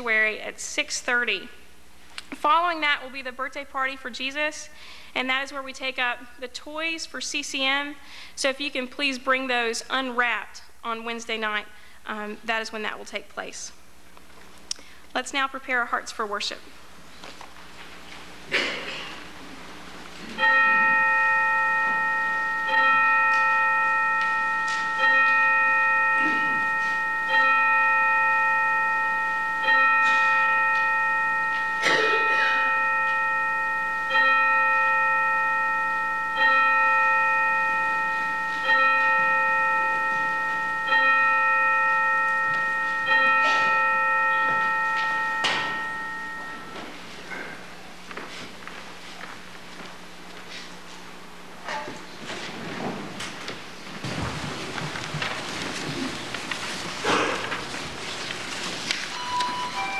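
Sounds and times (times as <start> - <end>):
bell tolling: 20.3 - 47.6.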